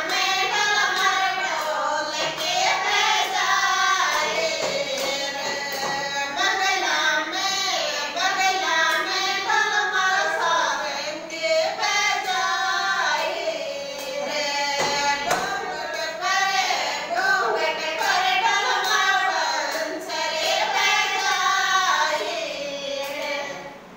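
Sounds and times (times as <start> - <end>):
women singing folk song: 0.0 - 23.8
hand claps: 0.1 - 3.0, 4.1 - 6.2.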